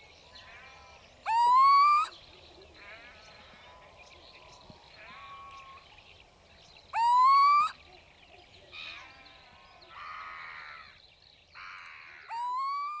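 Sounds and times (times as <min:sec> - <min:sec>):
owl calling: 0:01.3 - 0:02.2, 0:07.0 - 0:07.8, 0:11.6 - 0:13.0.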